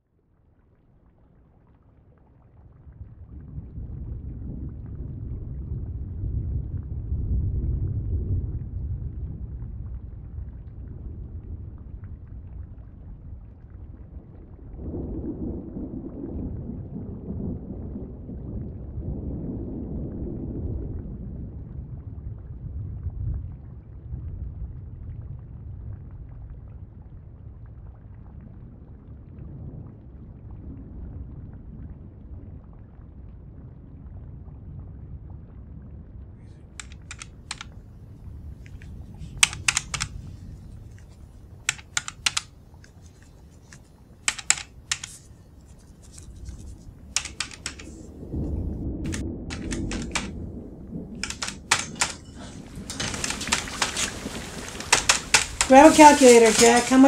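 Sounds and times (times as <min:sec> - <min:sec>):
low rumble: 0:47.9 - 0:52.9.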